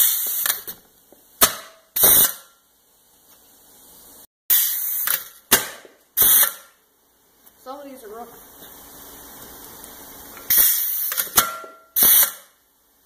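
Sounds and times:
compressed air hissing: 6.2s - 6.7s, 10.4s - 11.4s, 12.0s - 12.5s.

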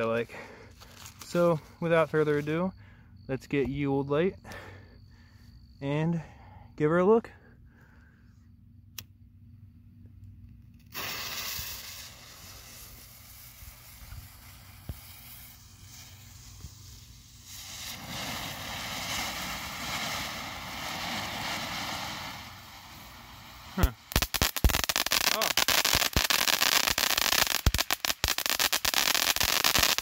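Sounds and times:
firework fountain spraying sparks: 10.8s - 30.0s
firework fuse hissing: 10.8s - 30.0s.

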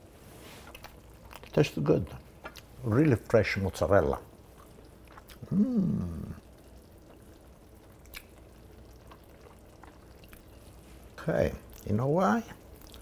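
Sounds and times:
man humming: 5.4s - 6.5s.

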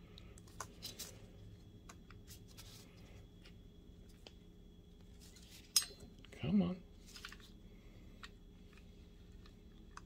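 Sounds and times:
faint clicks and handling noises: 7.0s - 10.0s.

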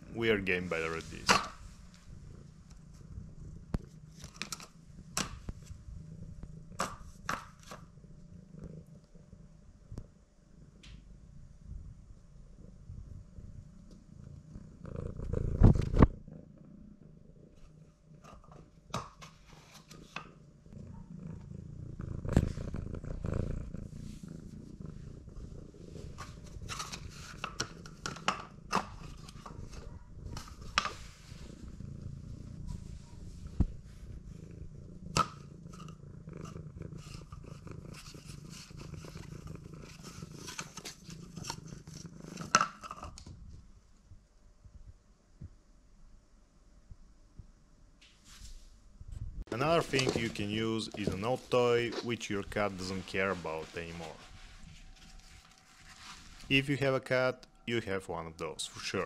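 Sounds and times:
cat purring: 0.0s - 45.9s, 49.0s - 59.0s
paper ball clicks and rustles: 49.6s - 54.2s.

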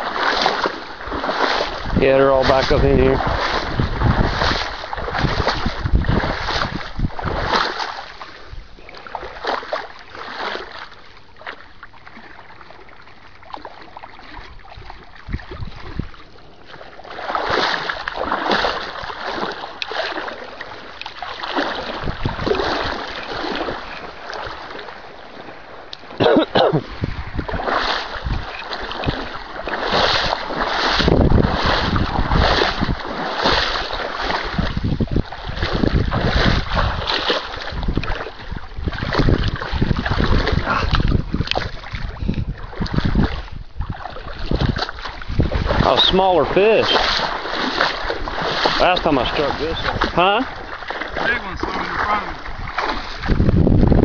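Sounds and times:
wind buffeting microphone: 0.0s - 9.4s, 14.3s - 19.9s, 21.4s - 54.0s
wading through shallow water: 0.0s - 54.0s.

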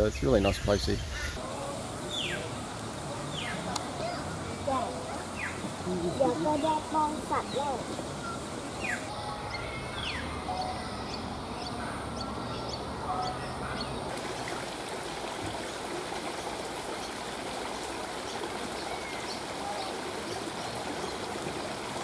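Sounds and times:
water trickling: 1.3s - 9.1s, 13.2s - 22.0s
small birds chirping: 3.3s - 14.6s.

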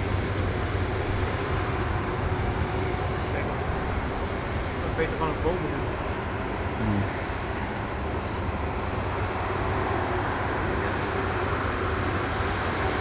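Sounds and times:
jet engines rushing: 0.0s - 13.0s.

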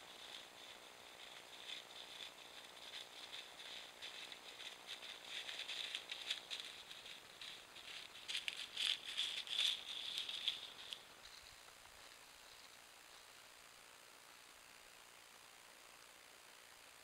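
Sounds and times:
footsteps rustling in dry leaves: 0.0s - 12.7s.

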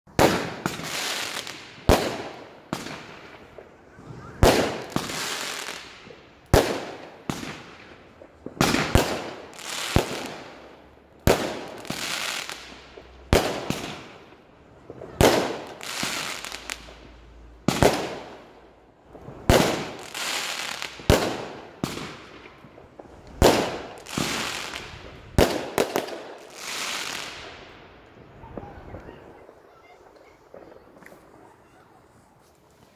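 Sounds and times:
fireworks bangs: 0.1s - 31.8s
fireworks hiss: 3.9s - 6.1s.

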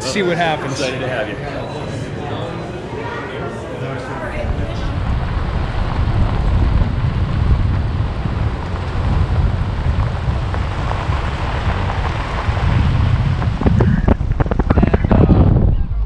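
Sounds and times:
low road rumble: 0.0s - 16.0s
wind buffeting microphone: 3.8s - 16.0s.

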